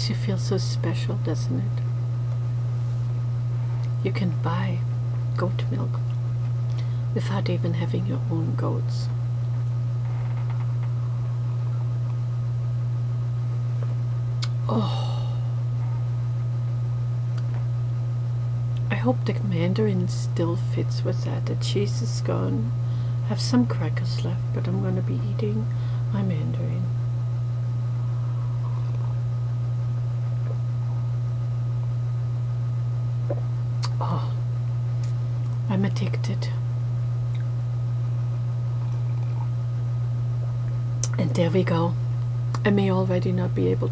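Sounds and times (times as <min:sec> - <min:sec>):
low hum: 0:00.0 - 0:43.9
breathy exhale: 0:14.7 - 0:15.6, 0:25.7 - 0:26.1.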